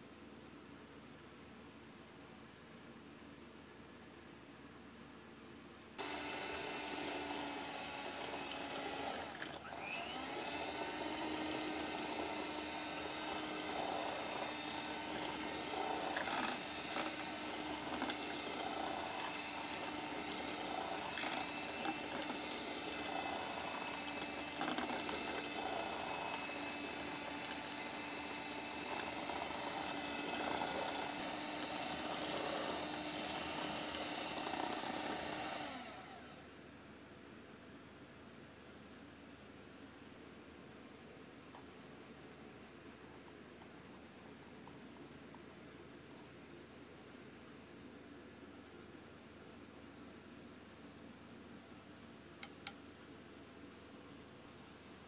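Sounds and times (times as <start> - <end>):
electric hand mixer whirring: 6.0 - 36.4.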